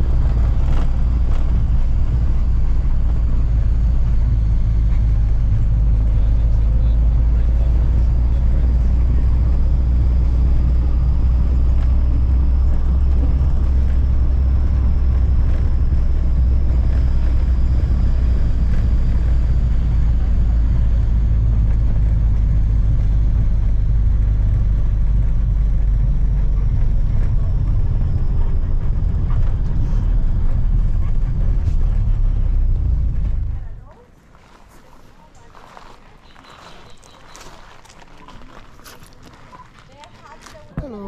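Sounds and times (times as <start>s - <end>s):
boat engine droning: 0.0s - 41.0s.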